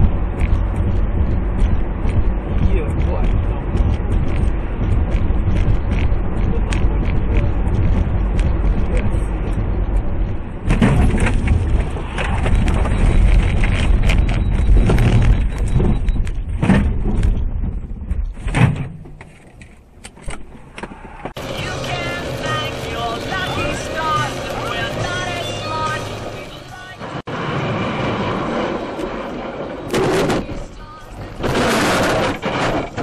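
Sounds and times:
tyres on wet highway: 0.0 - 17.8, 18.5 - 33.0
knocks and thumps: 0.0 - 19.4.

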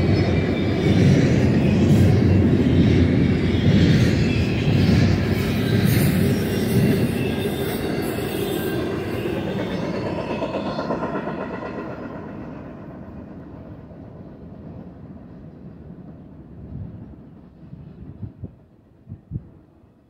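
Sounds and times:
freight train wheels rumbling: 0.0 - 19.9.

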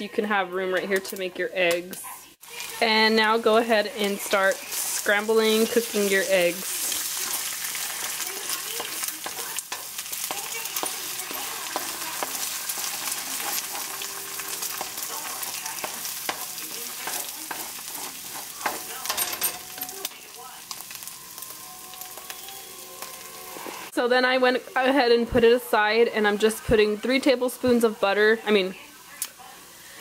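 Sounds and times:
eggs and bacon sizzling in a pan: 0.0 - 30.0
plastic spatula scraping and tapping: 15.8 - 18.9.

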